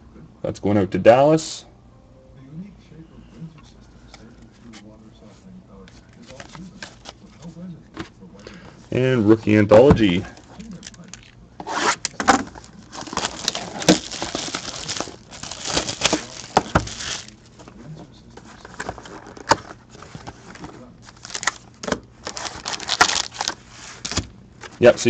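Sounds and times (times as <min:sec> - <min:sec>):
cardboard box crinkling: 0:12.4 - 0:17.7, 0:18.6 - 0:24.8.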